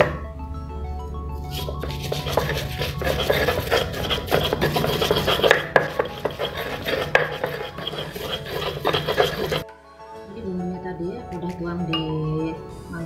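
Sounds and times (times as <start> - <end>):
pestle grinding in stone mortar: 1.5 - 9.6.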